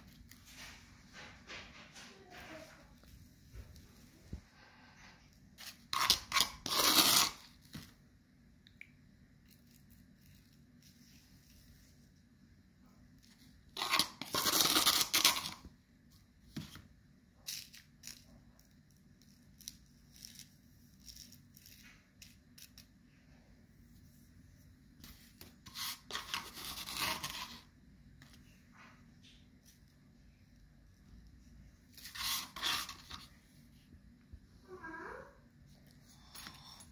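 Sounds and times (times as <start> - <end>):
metal spoon scraping sand on paper: 5.6 - 7.5, 25.6 - 27.7, 32.0 - 33.3.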